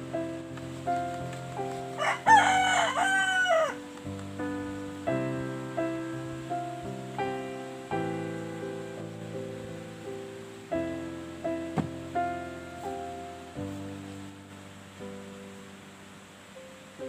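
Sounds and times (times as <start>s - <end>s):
gentle piano music: 0.0s - 17.0s
rooster crowing: 2.0s - 3.9s.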